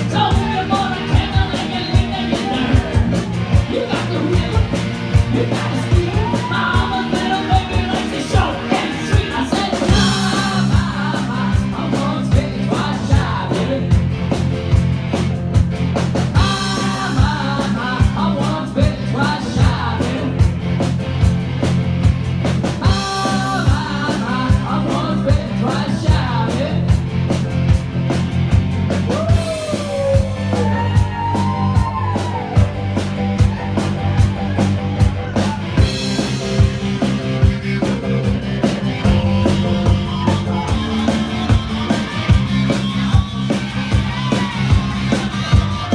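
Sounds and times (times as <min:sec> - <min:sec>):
man singing into microphone: 0:00.0 - 0:03.0, 0:05.3 - 0:14.0, 0:16.4 - 0:20.4, 0:22.8 - 0:26.9
drum kit steady beat: 0:00.0 - 0:45.9
electric guitar: 0:00.0 - 0:45.9.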